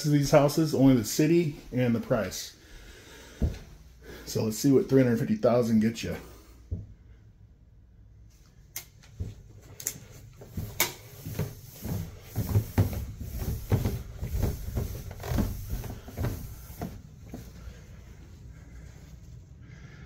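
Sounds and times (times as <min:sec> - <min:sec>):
footsteps going down stairs: 0:00.2 - 0:04.3, 0:09.1 - 0:18.9.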